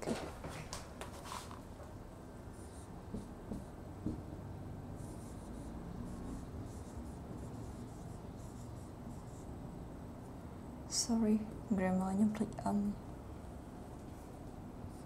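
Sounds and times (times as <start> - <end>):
marker scratching on whiteboard: 2.5 - 9.6.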